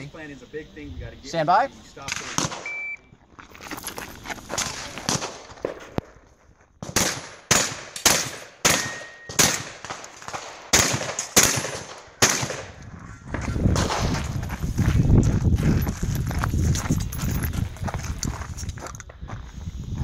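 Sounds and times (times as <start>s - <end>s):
gunshots: 2.1s - 2.7s, 4.6s - 6.0s, 6.8s - 12.8s, 13.7s - 14.3s.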